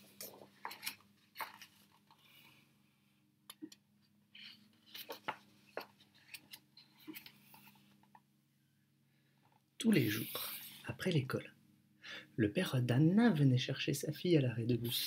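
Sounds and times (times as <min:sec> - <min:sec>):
book pages turning: 0:00.0 - 0:02.5, 0:04.4 - 0:08.2.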